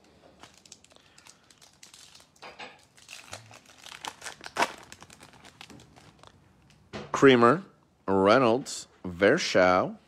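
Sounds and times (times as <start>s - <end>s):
foil wrapper tearing and crinkling: 0.4s - 6.3s.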